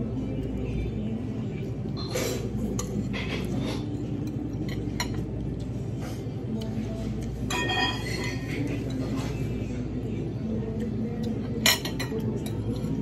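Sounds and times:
cutlery clinking on plate: 7.4s - 9.4s, 11.5s - 13.0s.

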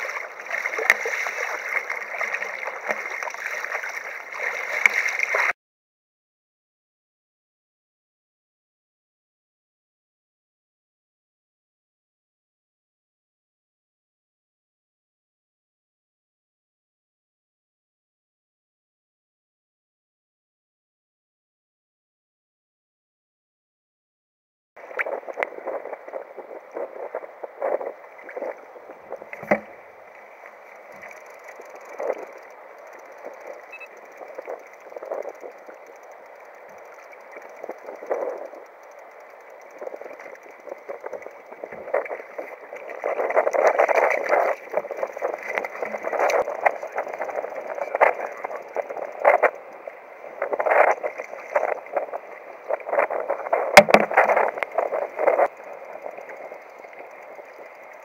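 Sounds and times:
water splashing against kayak hull: 0.0s - 5.6s, 24.8s - 58.0s.

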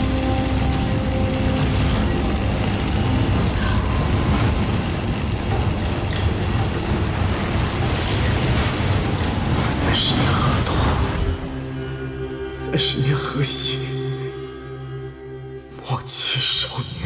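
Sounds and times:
heavy rushing rumble: 0.0s - 12.5s.

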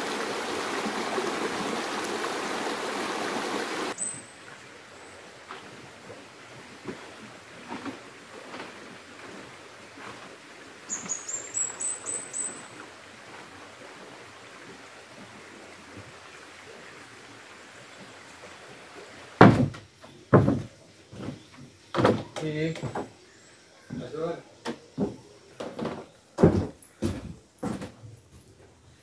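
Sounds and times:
stream running over rocks: 0.0s - 23.2s
bird chirping: 10.9s - 12.7s
loud thumps: 19.4s - 20.7s.

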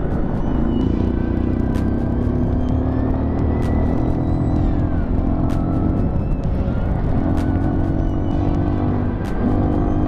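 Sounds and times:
motorcycle engine running: 0.0s - 10.0s
wind noise: 4.6s - 9.7s.

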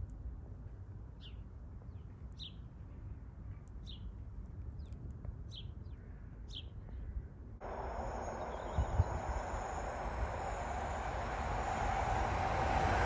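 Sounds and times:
small bird chirping: 7.6s - 12.7s
low background rumble: 7.6s - 13.0s
train passing with high whine: 7.6s - 13.0s.

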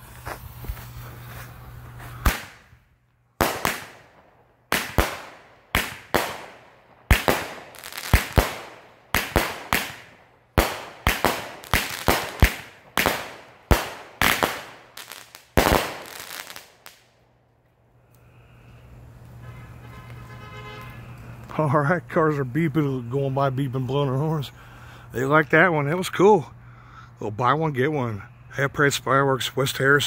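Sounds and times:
firework cake bangs: 2.2s - 2.7s, 4.7s - 14.8s.

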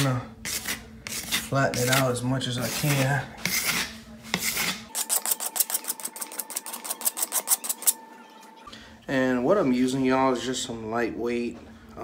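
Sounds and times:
hand tool scraping a wall: 0.0s - 5.3s.

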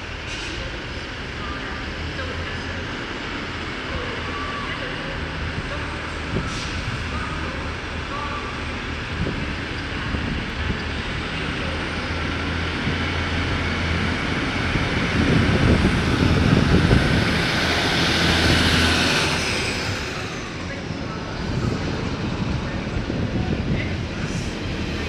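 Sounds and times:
diesel train engine droning: 0.0s - 25.0s
train wheels rumbling: 5.4s - 25.0s.

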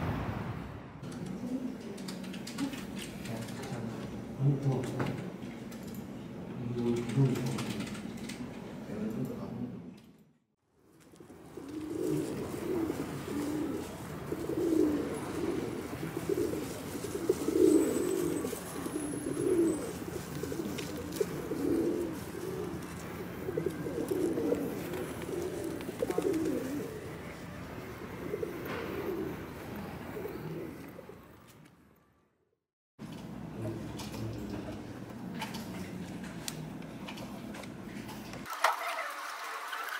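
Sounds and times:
pigeons cooing: 11.2s - 31.4s.

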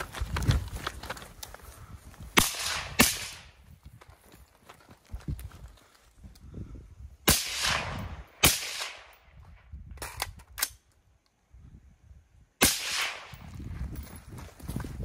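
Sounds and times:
rifle shots echoing: 2.4s - 3.5s, 7.3s - 9.3s, 12.6s - 13.4s.

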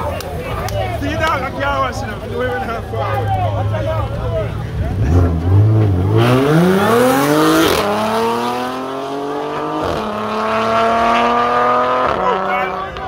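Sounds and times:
car engine accelerating hard: 3.0s - 13.0s.

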